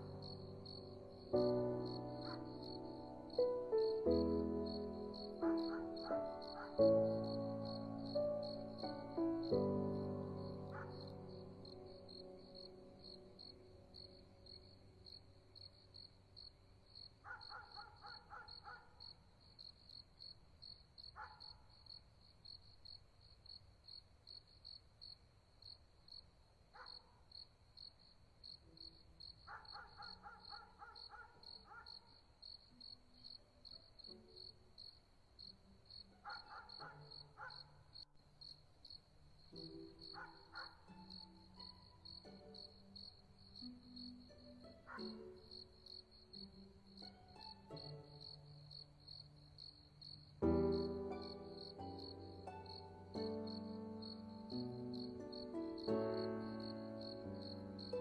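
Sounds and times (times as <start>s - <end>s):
ambient music with held notes: 0.0s - 16.3s, 39.5s - 58.0s
cricket-like chirping: 0.0s - 58.0s.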